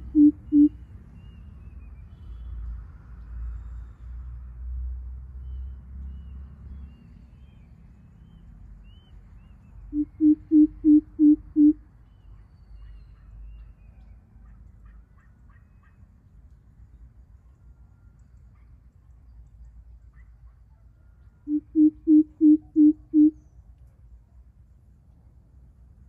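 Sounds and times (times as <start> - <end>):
bird giving deep hoots: 0.0 - 0.8, 10.0 - 11.8, 21.5 - 23.4.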